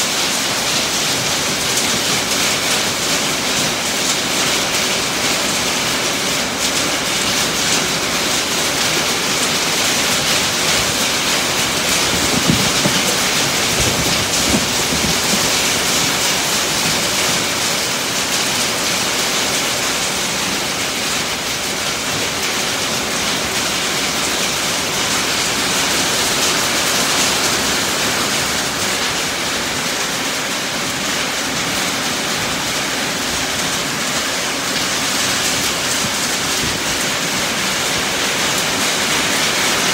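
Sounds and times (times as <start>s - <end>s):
heavy rain on a tin roof: 0.0s - 39.9s
low thumps: 11.9s - 15.8s.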